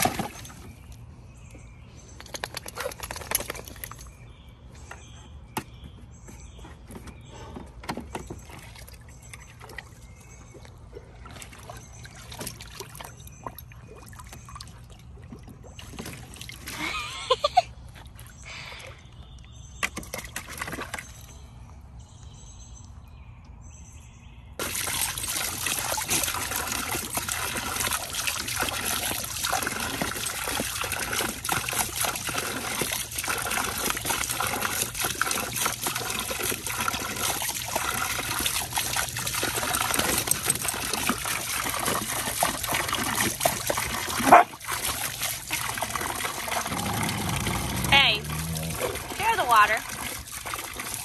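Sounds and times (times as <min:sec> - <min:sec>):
water trickling from a hose: 0:08.1 - 0:21.5, 0:24.6 - 0:51.0.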